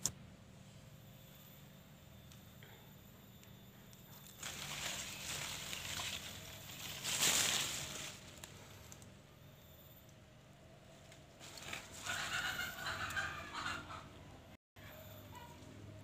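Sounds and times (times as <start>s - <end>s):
faint low hum: 0.0s - 16.0s
leaves rustling: 4.1s - 9.2s, 10.9s - 13.2s.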